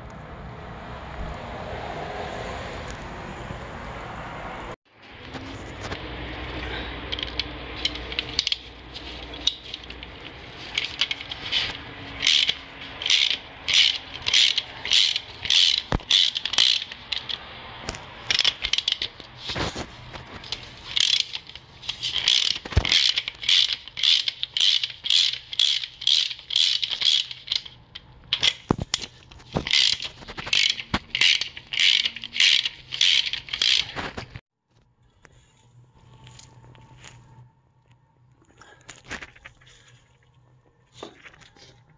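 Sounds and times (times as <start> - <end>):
ratchet wrench clicking: 7.1 - 17.5, 18.3 - 19.3, 20.5 - 34.0.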